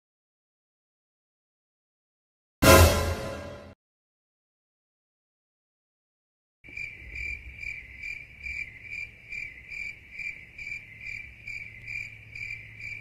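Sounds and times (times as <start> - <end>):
cricket chirping: 6.7 - 13.0.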